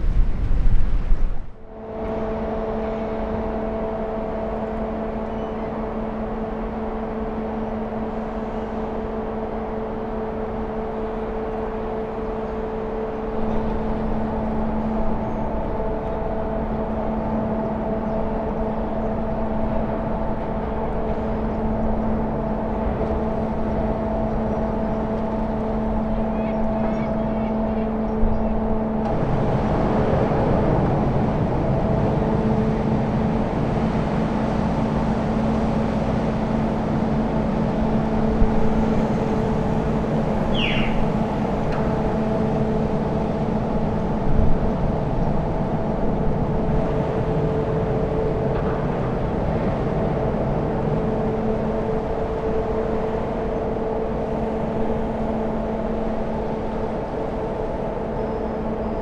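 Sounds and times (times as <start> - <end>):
ship engines droning: 0.0 - 59.0
bird call: 26.3 - 28.6, 40.5 - 41.1.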